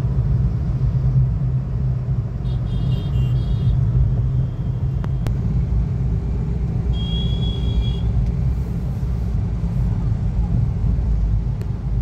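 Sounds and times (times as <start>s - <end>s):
car engine and road rumble: 0.0s - 12.0s
high-pitched car horn: 6.9s - 8.1s.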